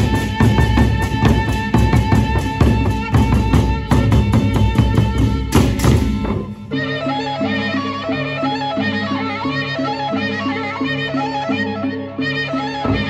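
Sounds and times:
barrel drums struck rhythmically: 0:00.0 - 0:06.6.

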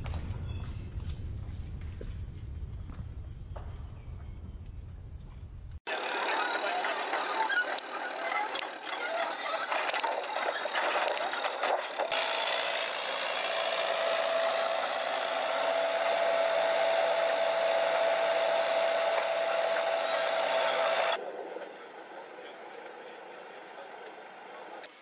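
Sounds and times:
steady mechanical whine: 0:05.8 - 0:25.0.

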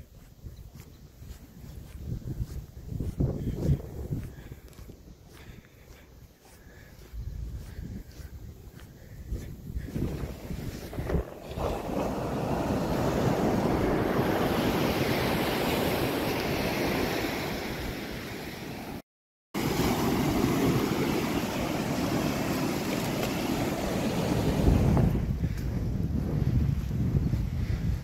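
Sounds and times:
wind buffeting microphone: 0:00.0 - 0:18.1, 0:19.7 - 0:28.0
ocean surf breaking on beach: 0:10.0 - 0:19.0, 0:19.6 - 0:25.3.

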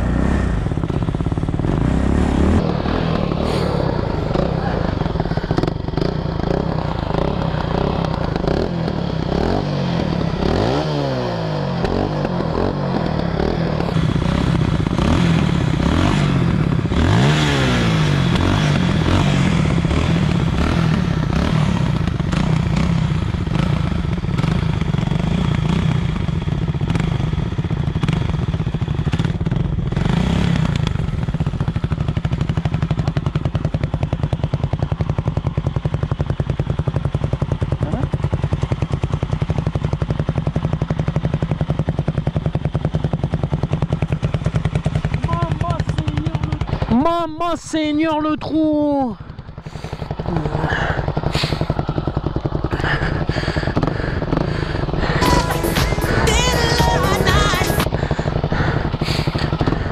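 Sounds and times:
engine throttle blips: 0:00.0 - 0:25.8, 0:49.2 - 0:59.9
quad engines idling: 0:00.0 - 0:59.9.

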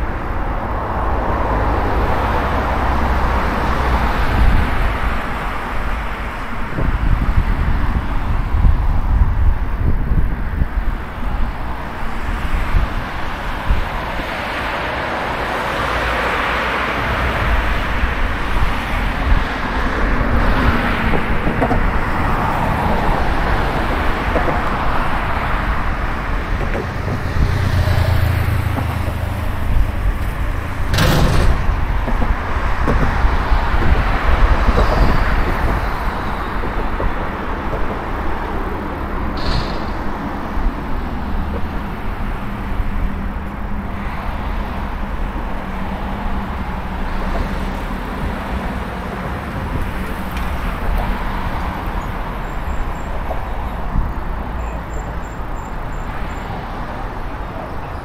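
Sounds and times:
road traffic noise: 0:00.0 - 0:58.0
sharp knock: 0:39.4 - 0:40.2.

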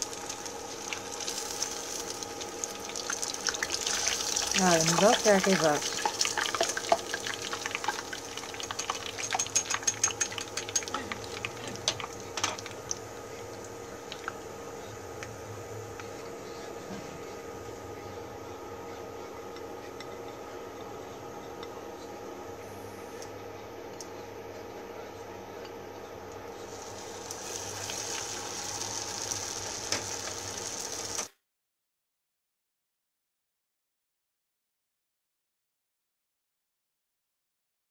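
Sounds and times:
frying oil crackling and popping: 0:00.0 - 0:14.5, 0:26.7 - 0:31.4.

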